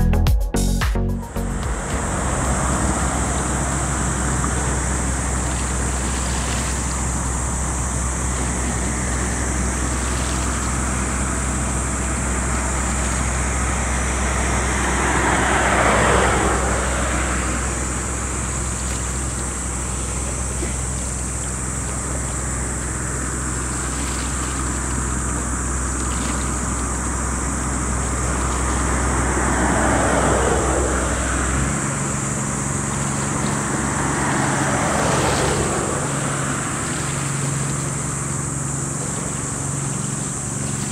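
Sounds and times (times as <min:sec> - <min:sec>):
whooshing swell: 0:00.0 - 0:06.2
boat engines rumbling: 0:00.0 - 0:40.9.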